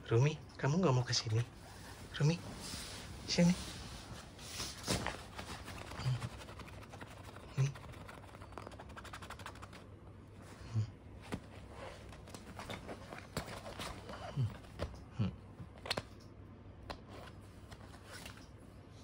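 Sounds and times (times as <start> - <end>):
rustling and scratching on fabric: 1.0 - 10.6, 11.2 - 14.8.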